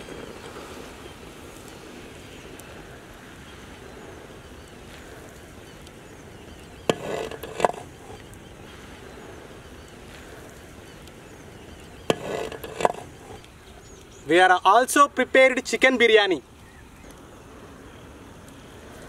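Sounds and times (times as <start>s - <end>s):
faint outdoor background: 0.0s - 19.0s
rice scraping rustle: 6.6s - 9.4s, 11.9s - 13.4s.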